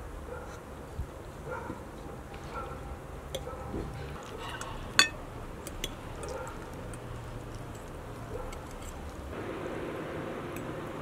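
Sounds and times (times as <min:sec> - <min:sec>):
forks clinking on plates: 0:04.6 - 0:05.2.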